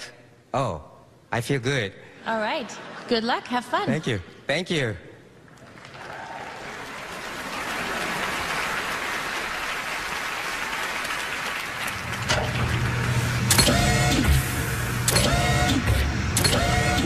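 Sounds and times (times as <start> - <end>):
audience applauding and cheering: 5.5 - 14.1.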